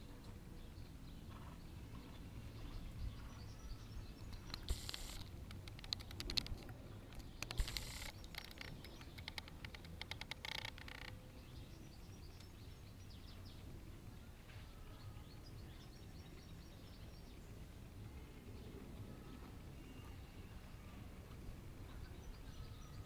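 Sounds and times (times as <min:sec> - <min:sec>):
faint bird chirps: 0:00.6 - 0:06.5, 0:07.1 - 0:21.1, 0:21.8 - 0:23.0
clicks and crackles: 0:04.2 - 0:11.2
short noisy bursts: 0:04.5 - 0:05.4, 0:07.5 - 0:08.3.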